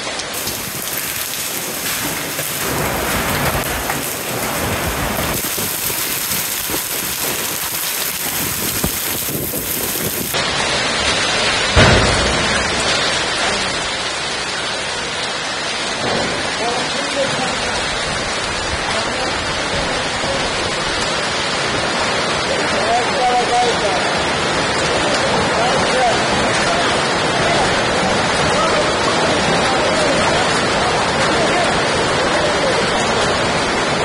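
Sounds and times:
hail and heavy rain on pavement: 0.0 - 34.0
loud thunder crack and rumble: 0.4 - 10.6, 11.6 - 13.5.

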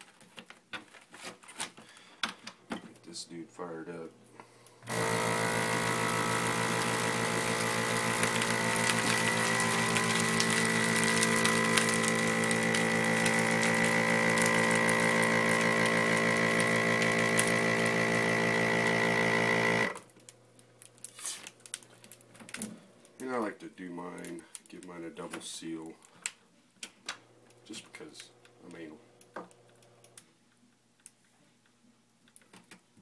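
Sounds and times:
vacuum sealer pump running: 4.4 - 20.4.

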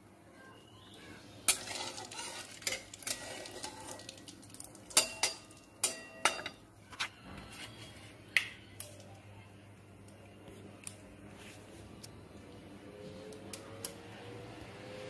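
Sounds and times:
metal spatula clanking on wok: 1.5 - 4.1, 4.9 - 6.6.

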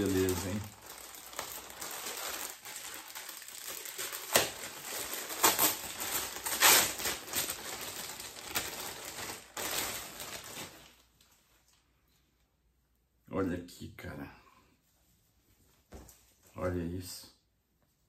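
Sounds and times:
packaging rustling: 0.0 - 11.3.

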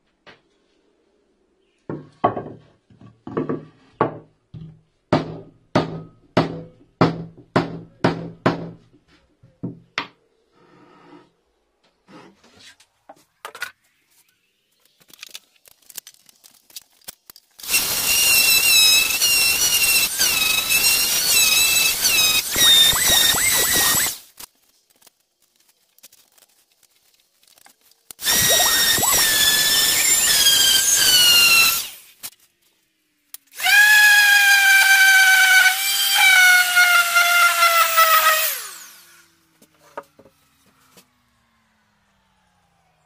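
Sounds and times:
orbital sander whining: 17.6 - 24.2, 28.2 - 32.1, 33.5 - 43.0.

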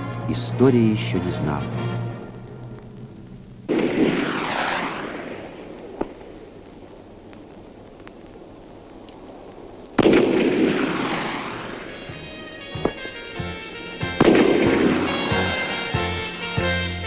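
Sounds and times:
fireworks booming: 0.6 - 17.0
sharp crack: 2.3 - 17.0
rushing hiss: 2.9 - 16.5.

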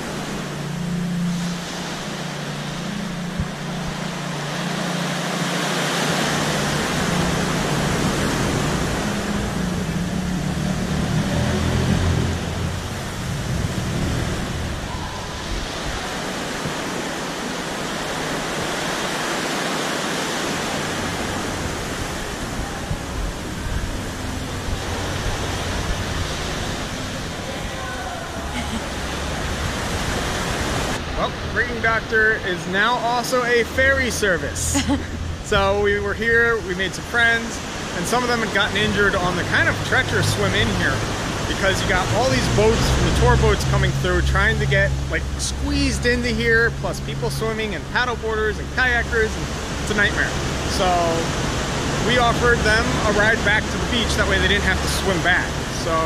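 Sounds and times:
low drone: 0.0 - 56.0
sea surf rushing: 0.0 - 56.0.

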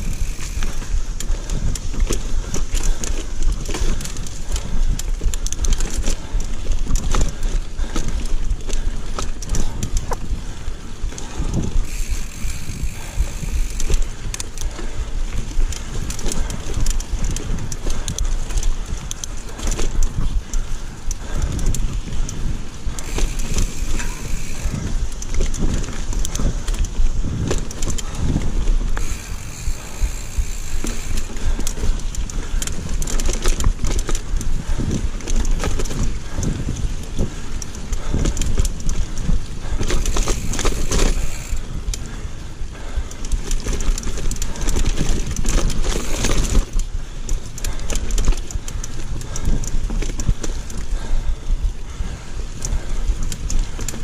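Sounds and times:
bike frame and chain clatter: 0.0 - 54.0
tyres rumbling on dirt: 22.9 - 36.5.

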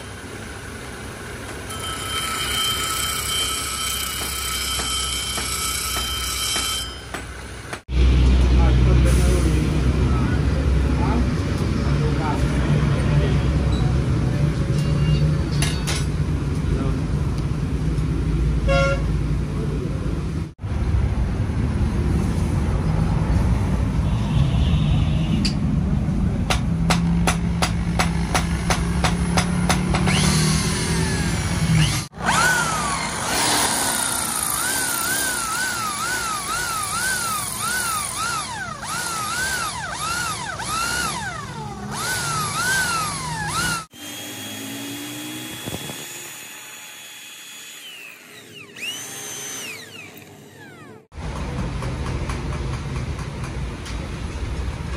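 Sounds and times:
power tools working steel: 0.0 - 8.4, 26.8 - 51.2.

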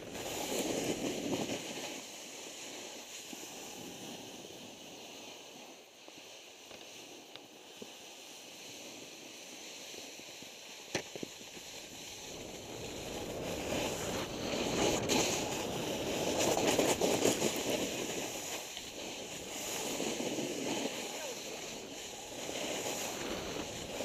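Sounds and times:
snowboard scraping over snow: 0.0 - 24.0
wind on microphone: 11.9 - 24.0.

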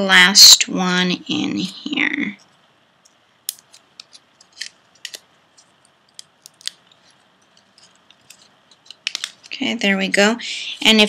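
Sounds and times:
light paper ticks and rustles: 3.6 - 10.3.

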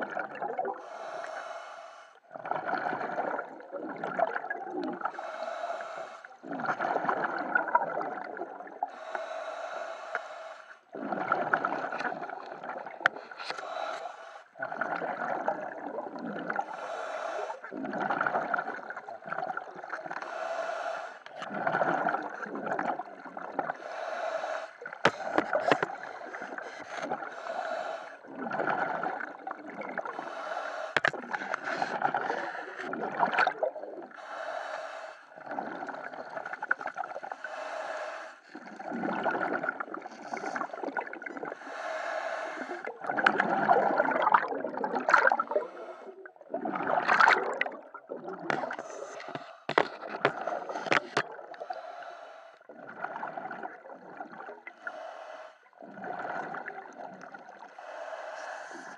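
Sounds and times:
bubbling exhalations: 0.0 - 1.1, 2.3 - 5.6, 6.4 - 9.4, 10.9 - 13.9, 14.6 - 20.4, 21.3 - 24.2, 24.8 - 34.2, 35.4 - 37.6, 38.5 - 41.9, 42.6 - 52.0, 52.6 - 54.9, 55.7 - 58.0
regulator hissing inhalations: 8.9 - 10.8, 34.2 - 35.3, 37.4 - 38.5, 41.6 - 42.9, 57.8 - 58.9.

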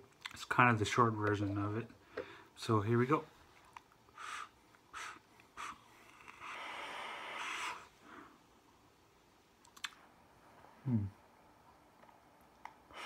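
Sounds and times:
vapour blown out: 4.1 - 8.0
airy hiss of vape drag: 4.2 - 8.0.

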